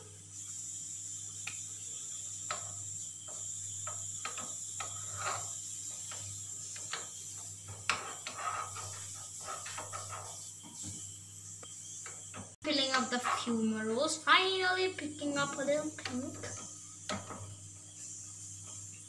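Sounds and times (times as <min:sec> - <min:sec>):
steady high hiss: 0:00.0 - 0:19.0
metal spoon scraping steel pan: 0:04.8 - 0:05.6.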